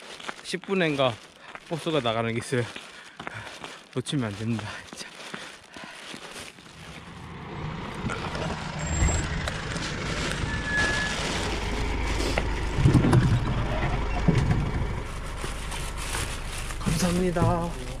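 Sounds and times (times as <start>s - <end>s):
bus engine rumble: 6.5s - 18.0s.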